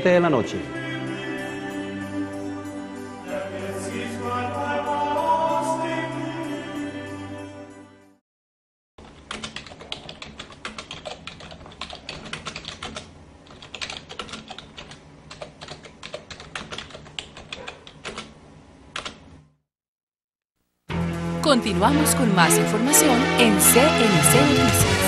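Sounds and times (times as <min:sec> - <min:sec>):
choir music: 0:00.0 - 0:08.2, 0:21.5 - 0:25.0
keyboard typing clicks: 0:09.1 - 0:18.3.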